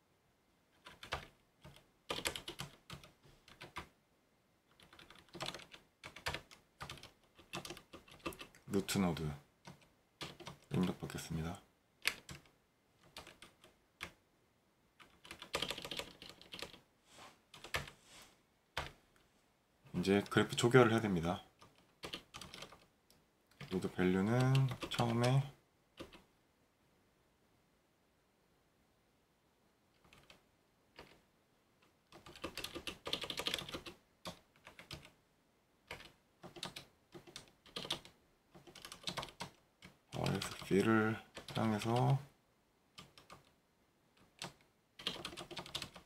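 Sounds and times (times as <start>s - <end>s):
computer keyboard typing: 0.8s - 3.9s, 4.7s - 11.0s, 12.0s - 14.2s, 15.0s - 16.8s, 17.6s - 17.9s, 21.6s - 22.9s, 23.5s - 26.2s, 30.0s - 30.4s, 31.0s - 31.2s, 32.1s - 35.1s, 35.9s - 42.2s, 43.0s - 43.5s, 44.2s - 46.0s.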